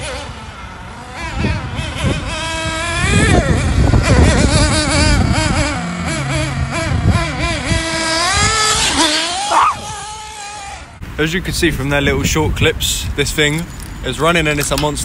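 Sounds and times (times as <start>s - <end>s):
small engine revving: 0.0s - 11.0s.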